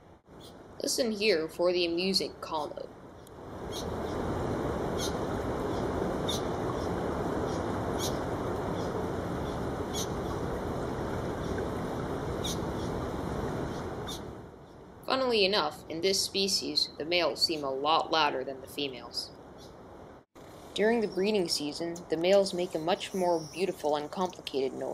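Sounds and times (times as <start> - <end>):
steady rushing background noise: 3.2 - 14.4.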